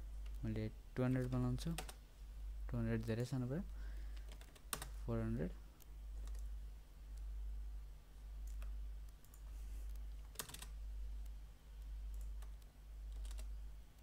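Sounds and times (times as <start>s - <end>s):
keyboard and mouse clicks: 5.8s - 6.5s, 8.4s - 14.0s.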